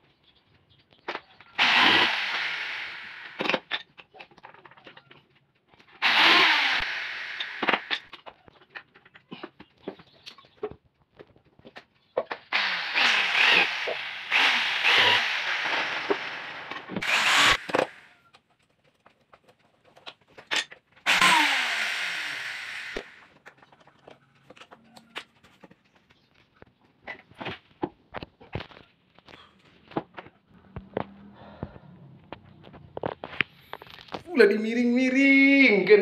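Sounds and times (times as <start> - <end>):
electric drill boring into wood: 1.6 - 3.6, 6.0 - 8.1, 12.5 - 18.2, 21.1 - 23.3.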